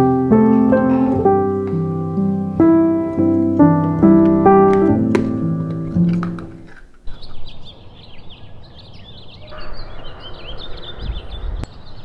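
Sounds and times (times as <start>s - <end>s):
piano music: 0.0s - 6.7s.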